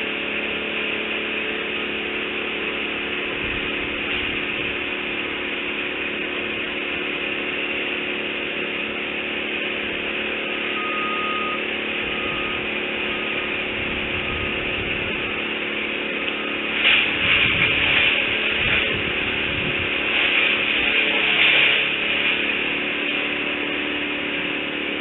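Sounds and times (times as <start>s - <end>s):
distant motor humming: 0.0s - 25.0s
short high tone: 10.6s - 13.4s
loud scratchy noise: 16.7s - 22.7s.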